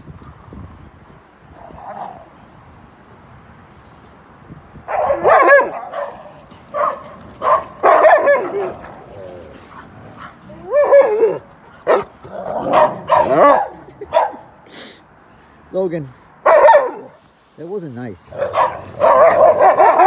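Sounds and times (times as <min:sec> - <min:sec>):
dogs barking and yipping: 0:04.8 - 0:14.6, 0:16.4 - 0:17.3, 0:18.3 - 0:20.0.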